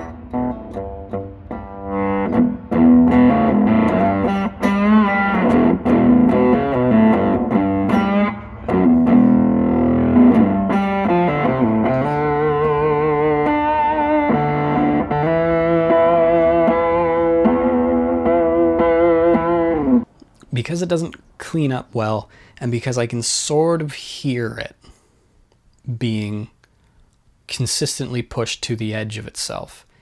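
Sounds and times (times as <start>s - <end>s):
fuzz electric guitar riff: 0.0s - 20.1s.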